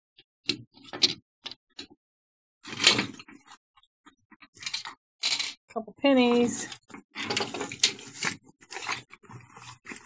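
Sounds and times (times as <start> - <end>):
small objects clicking: 4.6 - 5.6.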